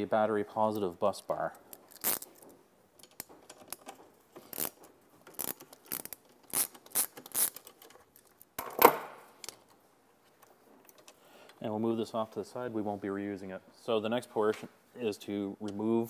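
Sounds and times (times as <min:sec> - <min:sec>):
small metallic clicks and scrapes: 0:01.4 - 0:08.5.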